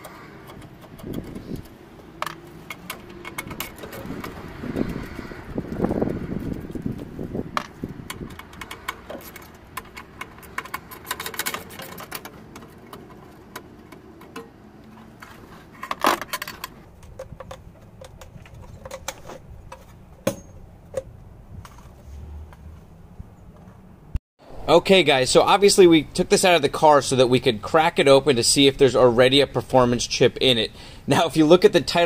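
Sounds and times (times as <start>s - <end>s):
metal clank: 20.2s - 20.7s.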